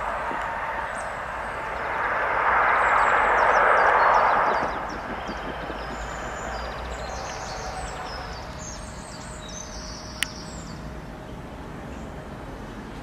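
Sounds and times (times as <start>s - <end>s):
low outdoor rumble: 0.0s - 13.0s
small birds chirping: 2.8s - 11.0s.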